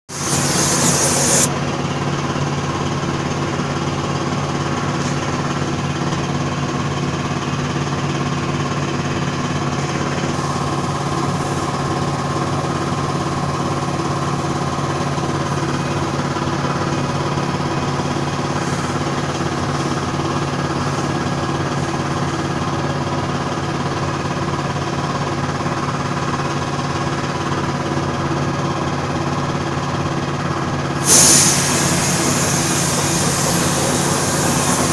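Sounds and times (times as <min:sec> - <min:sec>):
air compressor motor humming: 0:00.0 - 0:06.3, 0:09.3 - 0:12.8, 0:31.0 - 0:34.9
spray gun hissing: 0:00.1 - 0:01.5, 0:31.0 - 0:34.9.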